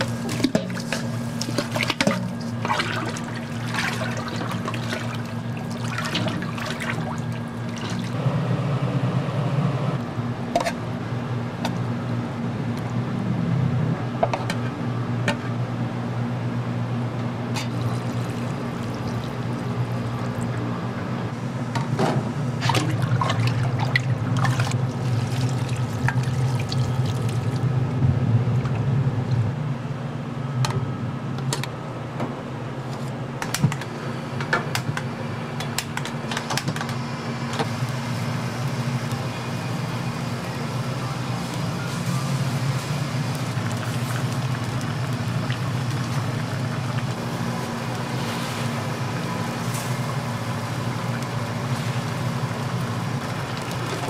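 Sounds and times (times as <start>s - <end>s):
water running: 0.0s - 8.2s, 17.6s - 20.7s, 22.6s - 27.7s, 41.5s - 54.0s.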